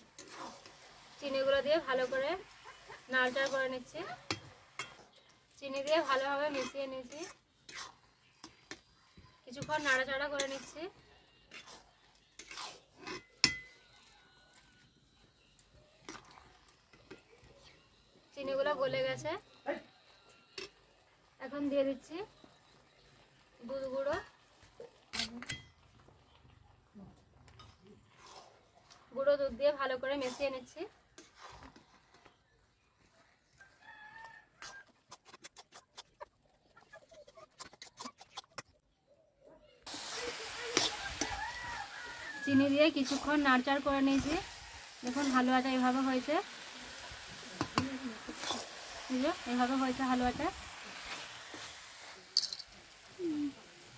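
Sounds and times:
metal spatula scraping a pan: 0:00.0 - 0:08.9, 0:09.5 - 0:14.7, 0:27.5 - 0:29.1, 0:29.8 - 0:32.1, 0:40.0 - 0:52.7
chicken clucking: 0:35.8 - 0:38.8.

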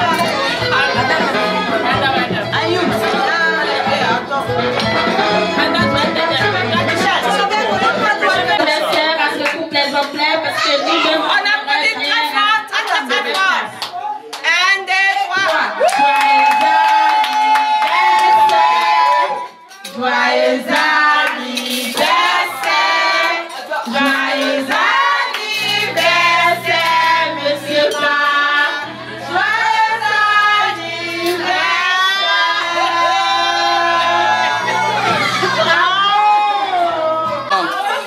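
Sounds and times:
woman singing into microphone: 0:19.9 - 0:34.7.

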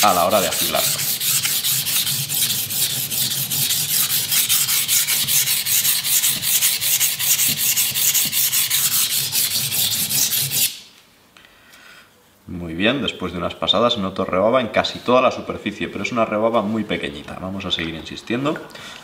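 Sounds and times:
knife scraping on whetstone: 0:00.3 - 0:10.8.

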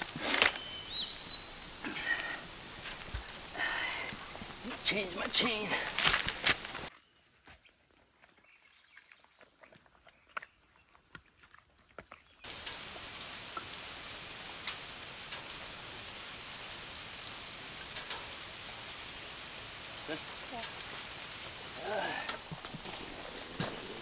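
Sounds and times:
rain falling: 0:00.0 - 0:06.9, 0:12.4 - 0:24.0.

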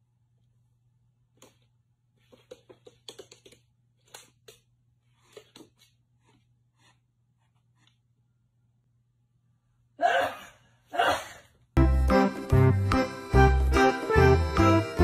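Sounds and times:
cat claws clicking on wooden floor: 0:02.3 - 0:04.7.

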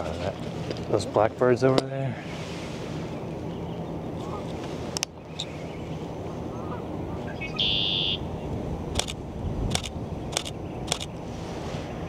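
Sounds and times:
low background rumble: 0:00.0 - 0:12.0
blackbird singing buzzy trill: 0:05.2 - 0:08.5
camera shutter clicks: 0:08.9 - 0:11.1.

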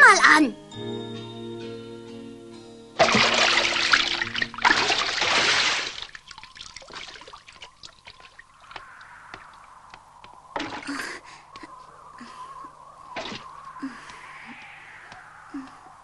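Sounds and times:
water splashing in a bucket: 0:03.0 - 0:09.6, 0:10.5 - 0:11.0, 0:13.2 - 0:13.4
water dripping and trickling: 0:03.0 - 0:11.8, 0:12.7 - 0:15.8.

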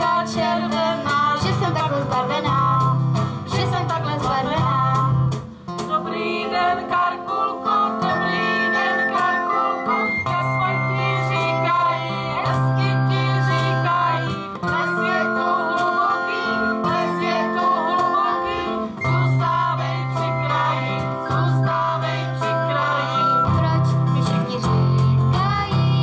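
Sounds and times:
girl and women singing: 0:00.0 - 0:02.9, 0:05.8 - 0:26.0
acoustic guitar: 0:00.0 - 0:26.0
sustained keyboard notes: 0:07.7 - 0:24.9.

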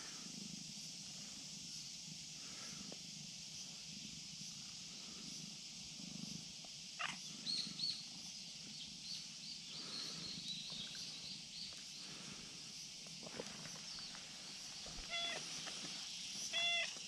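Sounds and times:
steady high hiss: 0:00.0 - 0:17.0
small birds chirping: 0:03.6 - 0:17.0.

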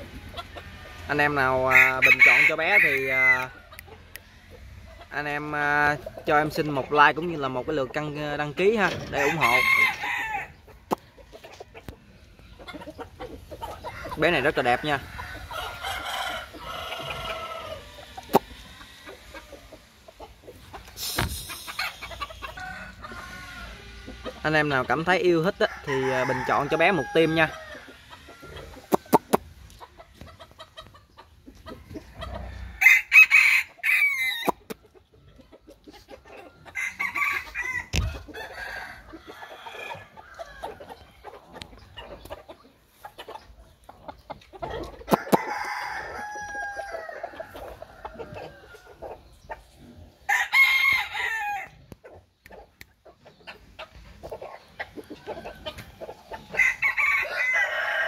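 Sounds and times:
rooster crowing: 0:01.6 - 0:03.6, 0:09.1 - 0:10.6, 0:13.9 - 0:18.0, 0:22.0 - 0:24.1, 0:25.5 - 0:28.7, 0:32.2 - 0:34.5, 0:36.7 - 0:40.8, 0:45.1 - 0:49.0, 0:50.3 - 0:51.8, 0:56.5 - 0:58.0.

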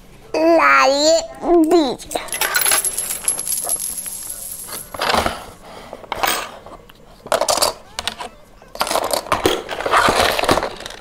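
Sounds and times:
coins clinking on plastic: 0:02.2 - 0:05.3.

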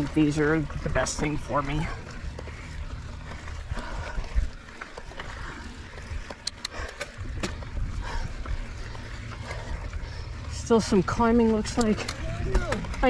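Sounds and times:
wind and tyre rumble: 0:00.0 - 0:13.0
sharp clicks: 0:06.3 - 0:07.5.

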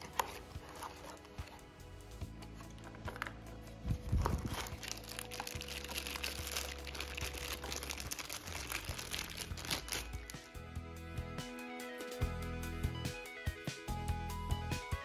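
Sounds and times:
background music: 0:00.0 - 0:15.0
plastic bag crinkling: 0:04.0 - 0:10.4.

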